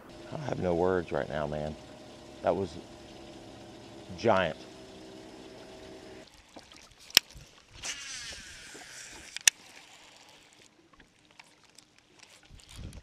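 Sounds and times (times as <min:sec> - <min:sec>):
reel spool whirring: 0:00.0 - 0:06.6, 0:07.8 - 0:13.0
reel sharp click: 0:07.1 - 0:09.7.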